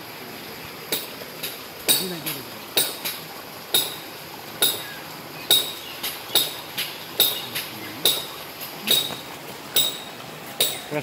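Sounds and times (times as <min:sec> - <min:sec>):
faint steady hiss: 0:00.0 - 0:11.0
sharp metallic clinks: 0:05.5 - 0:11.0.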